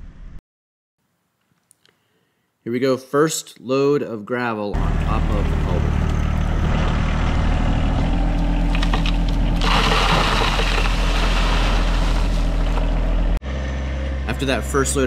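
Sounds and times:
tractor diesel engine running: 4.8s - 15.0s
gravel pouring onto plastic pipe: 8.7s - 12.5s.

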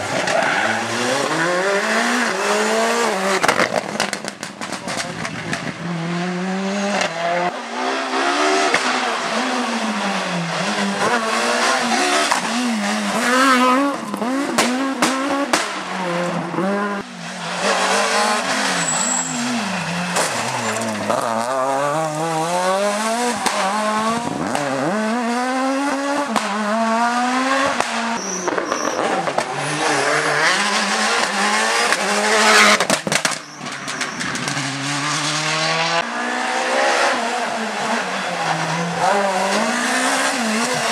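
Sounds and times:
rally car engines revving: 0.0s - 40.9s
tyre squeal: 18.5s - 21.7s, 28.1s - 30.0s, 33.3s - 34.6s.

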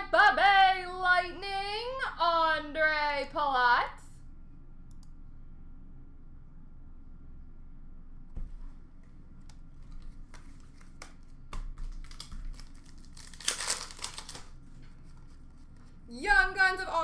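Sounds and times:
cards clicking and tapping: 9.4s - 14.5s
plastic wrapper crinkling and tearing: 9.8s - 14.6s.

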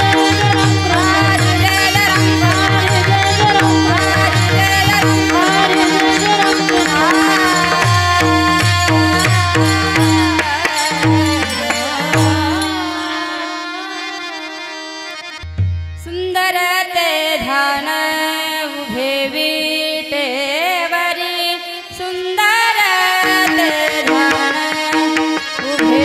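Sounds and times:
pakhawaj drum strokes: 0.0s - 13.4s
woman singing devotional melody: 0.0s - 15.2s, 16.0s - 26.0s
tambura drone: 0.0s - 15.3s
harmonium: 0.0s - 26.0s.

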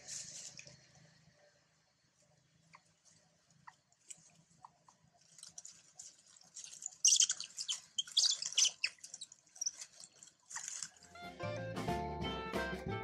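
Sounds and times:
dry leaves crackling and rustling: 5.2s - 11.3s.

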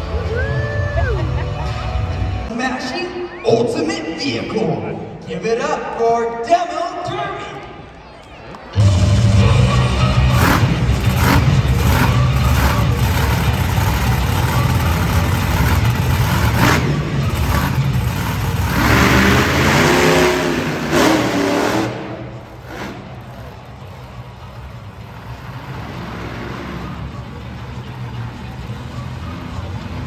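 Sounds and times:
monster truck engine revving: 8.8s - 30.0s.

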